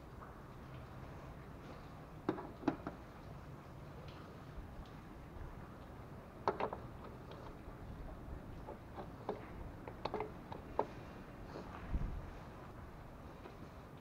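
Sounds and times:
plastic funnel clicks and taps: 6.4 - 7.5.

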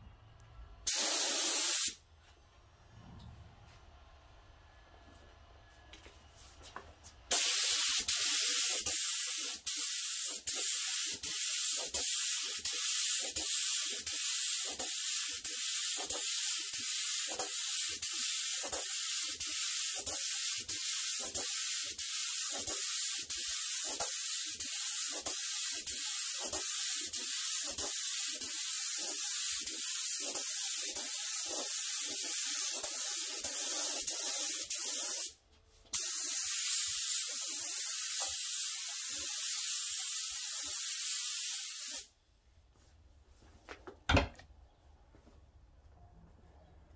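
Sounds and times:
spray gun air hiss: 0.8 - 2.0, 7.3 - 42.1.

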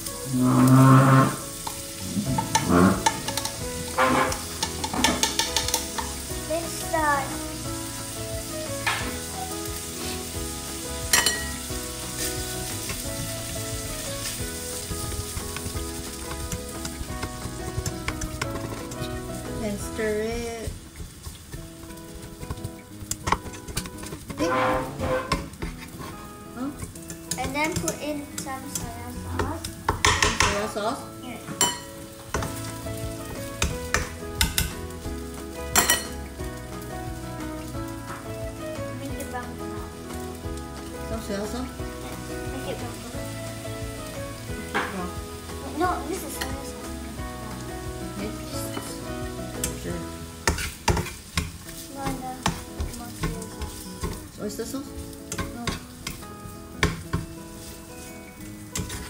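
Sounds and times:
food sizzling in a frying pan: 0.0 - 59.0
spatula clinking against pan: 2.4 - 6.1, 11.1 - 11.6, 31.6 - 31.9, 35.7 - 36.2.

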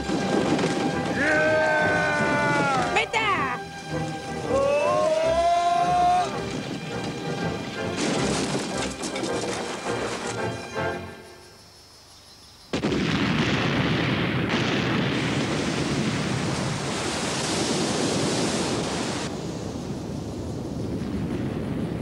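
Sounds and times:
cartoon explosion blast: 12.7 - 18.8.

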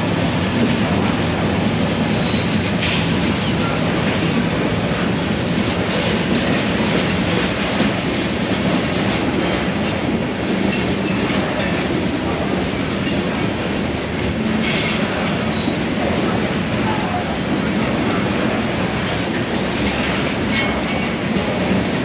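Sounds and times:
freight train rumbling past: 0.0 - 22.0.

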